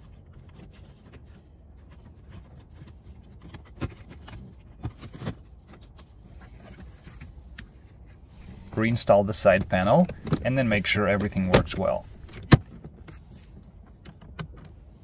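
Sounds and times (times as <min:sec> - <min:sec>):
light plastic handling: 0:08.4 - 0:14.8.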